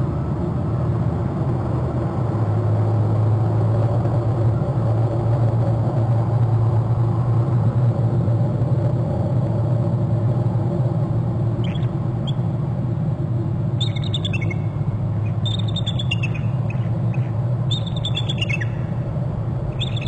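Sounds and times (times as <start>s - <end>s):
low hum: 1.2s - 20.0s
eagle chittering call: 11.6s - 12.5s, 13.8s - 20.0s.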